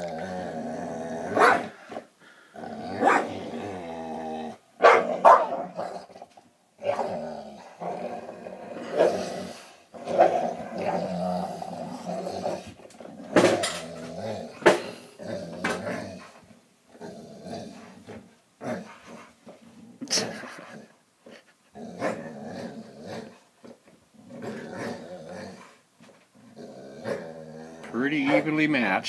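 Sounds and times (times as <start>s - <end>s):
dogs play growling: 0.0s - 28.6s.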